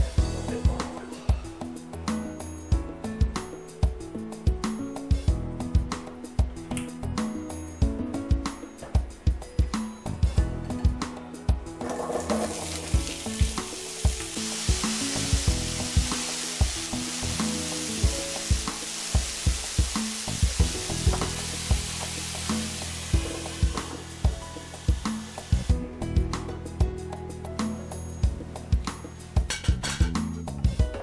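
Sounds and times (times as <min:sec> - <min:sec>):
background music: 0:00.0 - 0:31.0
potatoes sizzling in oil: 0:11.9 - 0:25.7.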